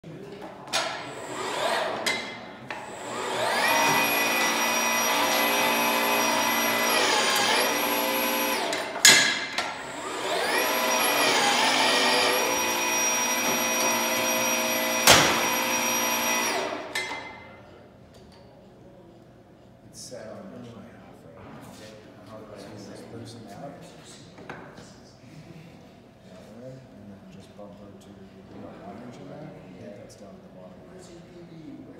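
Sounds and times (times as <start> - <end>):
pipe threading machine whining: 1.0 - 17.4.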